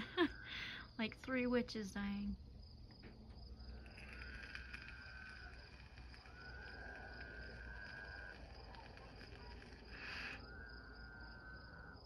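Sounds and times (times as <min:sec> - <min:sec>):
insects chirring: 0:00.0 - 0:12.0
toads trilling: 0:03.5 - 0:12.0.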